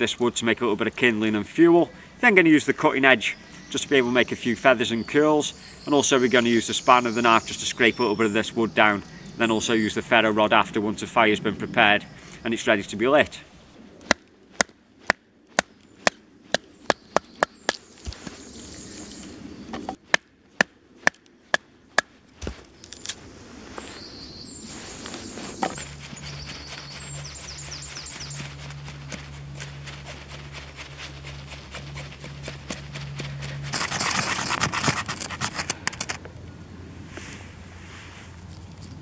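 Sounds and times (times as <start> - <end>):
knife shaving wood: 24.7 - 36.2.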